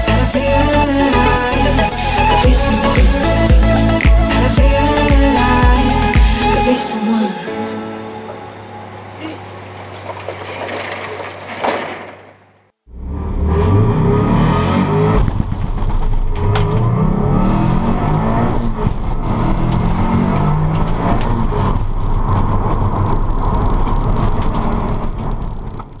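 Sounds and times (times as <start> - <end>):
car engine running hard: 12.9 - 26.0.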